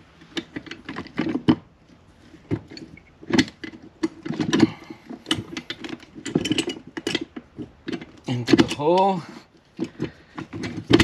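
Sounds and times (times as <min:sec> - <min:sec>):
metal gears clinking and knocking: 0:02.7 - 0:07.3.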